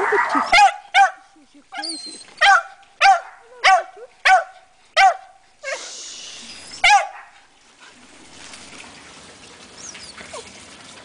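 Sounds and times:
small dog barking: 0.0s - 1.2s, 2.4s - 5.8s, 6.8s - 7.4s.

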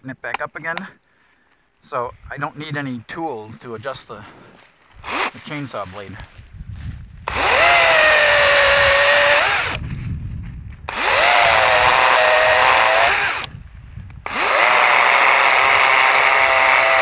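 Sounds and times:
electric chainsaw cutting stems: 5.0s - 5.5s, 7.3s - 9.8s, 10.9s - 13.5s, 14.2s - 17.0s.

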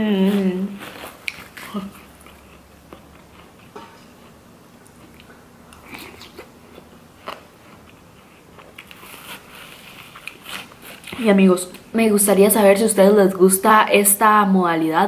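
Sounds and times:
quiet chewing: 0.7s - 11.8s.

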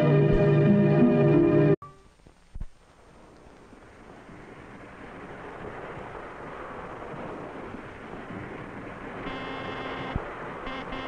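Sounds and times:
steady rushing noise: 2.1s - 11.0s
buzzy pitched tone: 9.2s - 11.0s.

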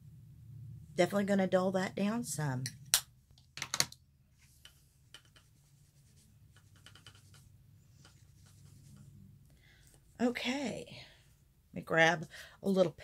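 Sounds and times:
low steady hum: 0.0s - 13.0s
brushes rustling: 4.3s - 9.2s.

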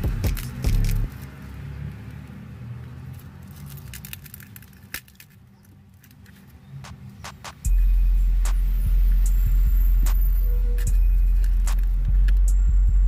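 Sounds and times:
glass clicking and crackling: 3.5s - 6.4s
low steady hum: 7.6s - 13.0s.

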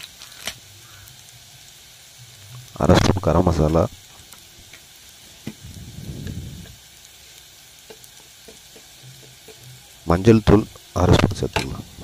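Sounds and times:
onions sizzling in oil: 0.0s - 12.0s
low rumble: 5.6s - 6.8s.

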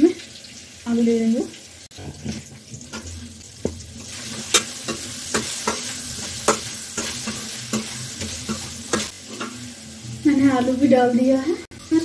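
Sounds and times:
potatoes sizzling in hot oil: 0.0s - 12.0s
metal spatula scraping pan: 4.0s - 10.2s.

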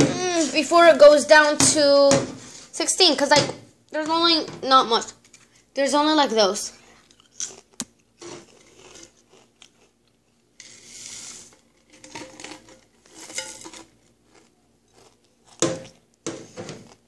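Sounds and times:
crisps being crunched and chewed: 7.0s - 11.6s, 13.8s - 15.6s.

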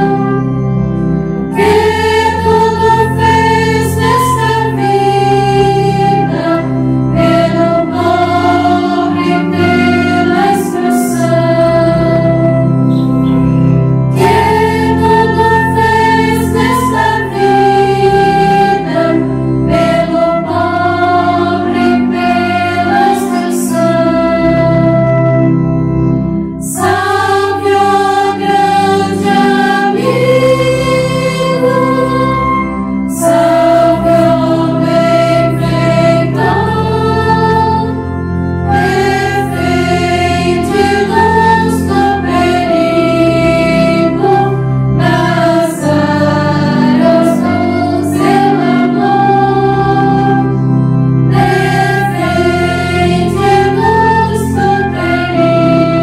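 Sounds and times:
women's choir singing a hymn: 0.0s - 0.5s, 1.5s - 13.2s, 14.1s - 25.4s, 26.6s - 56.0s
low organ chords: 0.0s - 56.0s.

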